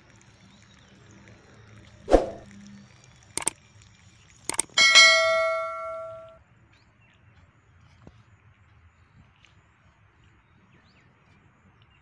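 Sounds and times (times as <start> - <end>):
sharp clicks: 3.4 - 3.6, 4.5 - 6.3
metal object ringing like a bell: 4.6 - 6.4.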